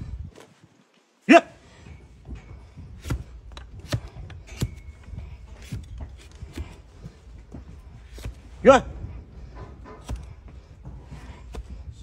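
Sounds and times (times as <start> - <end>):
hoof knife cutting hoof: 2.4 - 12.0.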